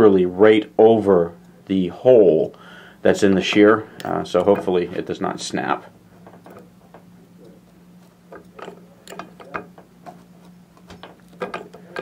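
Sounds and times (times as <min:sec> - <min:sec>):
arbor press clicking: 0:08.3 - 0:09.9, 0:10.9 - 0:12.0.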